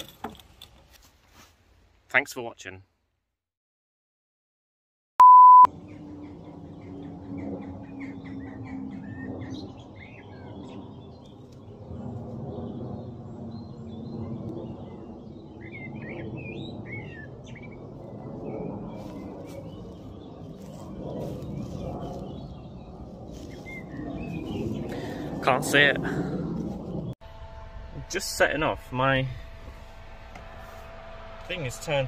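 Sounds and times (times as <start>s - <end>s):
loud beep: 5.2s - 5.7s
low background rumble: 5.7s - 32.0s
small birds chirping: 19.0s - 25.3s.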